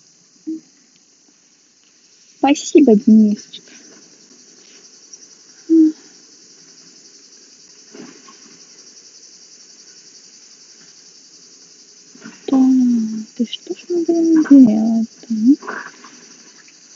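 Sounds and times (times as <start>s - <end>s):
insects chirring: 0.0s - 16.9s
woman humming: 5.7s - 6.0s, 12.5s - 15.6s.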